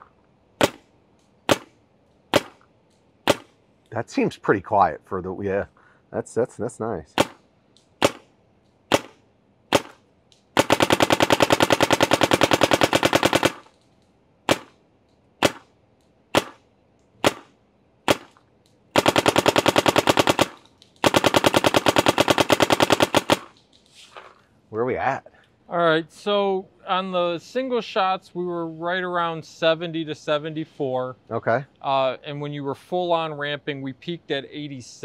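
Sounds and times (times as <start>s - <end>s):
paintball marker firing: 0.6s - 3.6s, 7.2s - 8.3s, 8.9s - 13.8s, 14.5s - 14.8s, 15.4s - 15.7s, 16.3s - 18.4s, 19.0s - 23.7s.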